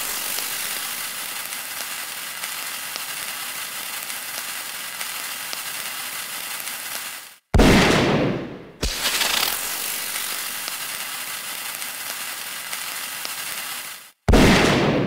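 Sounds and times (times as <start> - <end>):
fuse crackling sizzle: 0.0 - 7.5, 8.8 - 14.6
loud sudden burst: 8.8 - 10.7.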